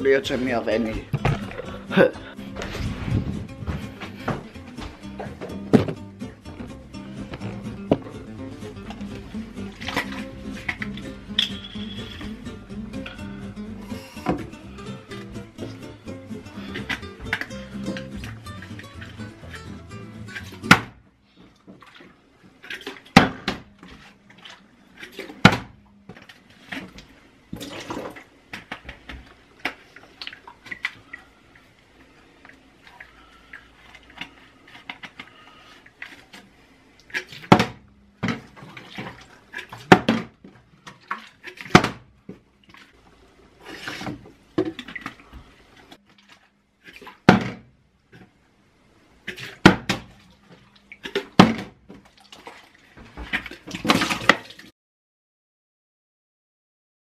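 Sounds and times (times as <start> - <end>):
water sloshing in bottle: 0.2 - 12.4, 21.4 - 47.4, 49.2 - 54.7
plastic bottle landing on counter: 5.4 - 6.0, 25.4 - 25.7, 41.7 - 42.0, 47.3 - 47.6, 51.4 - 51.8.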